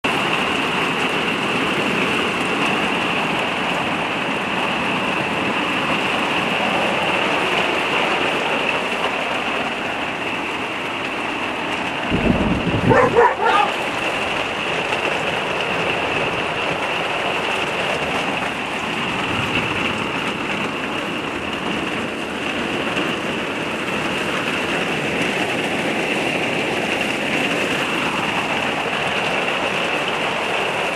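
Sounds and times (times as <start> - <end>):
heavy rain on a roof: 0.0 - 30.9
dog barking: 12.8 - 13.8.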